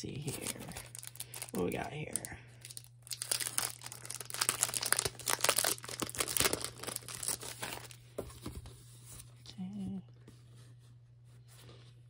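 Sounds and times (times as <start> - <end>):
plastic wrap crinkling and tearing: 0.2 - 8.0.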